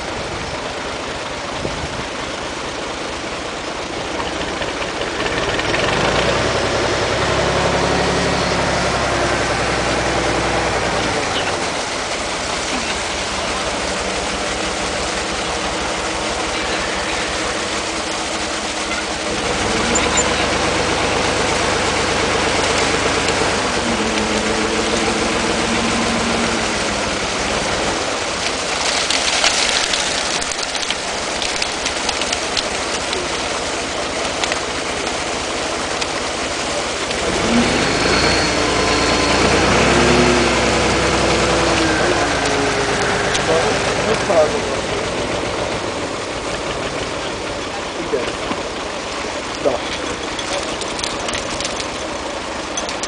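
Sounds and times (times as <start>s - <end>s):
truck engine revving: 0.0s - 53.0s
water splashing: 0.0s - 53.0s.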